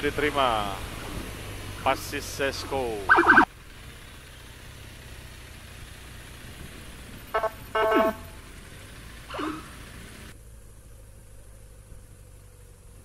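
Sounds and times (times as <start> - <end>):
vehicle engine rumble: 0.0 - 13.0
vehicle horn toots: 7.3 - 8.4.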